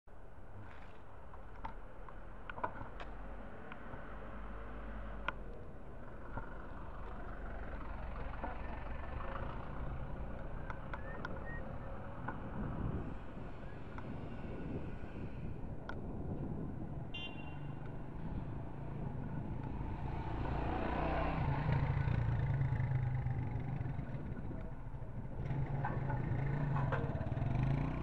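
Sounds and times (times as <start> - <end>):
street traffic: 0.1 - 28.0
wind rumble on microphone: 8.8 - 28.0.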